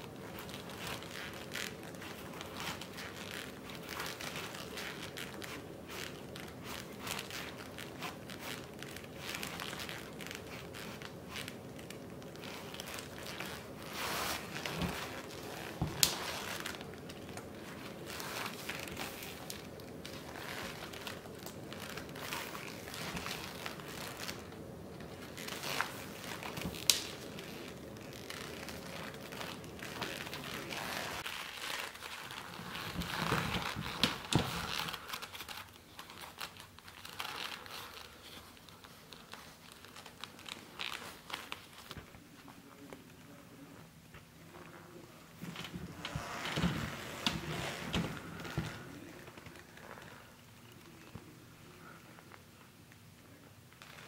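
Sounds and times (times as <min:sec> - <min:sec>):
laces rustling through leather boots: 0:00.0 - 0:43.1.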